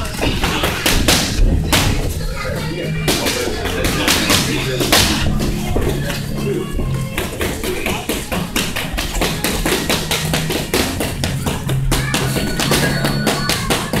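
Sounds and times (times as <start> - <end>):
background music with low bass: 0.0 - 14.0
boxing gloves slapping: 0.1 - 2.0, 7.2 - 14.0.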